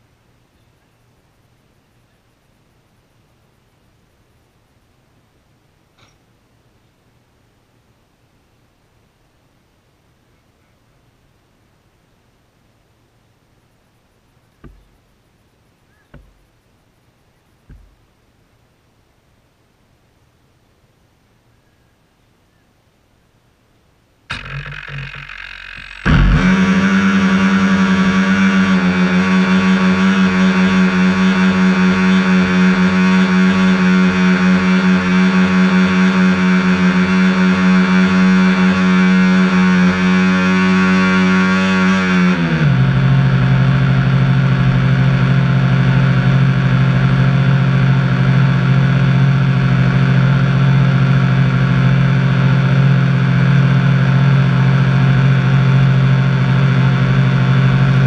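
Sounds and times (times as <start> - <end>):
electric motors whining: 24.3 - 27.4.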